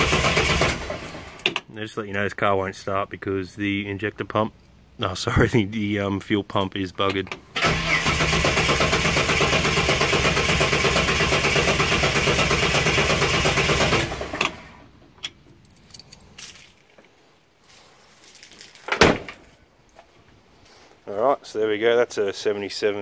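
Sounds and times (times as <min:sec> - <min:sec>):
starter motor cranking engine: 0:00.0 - 0:01.6, 0:07.5 - 0:14.9.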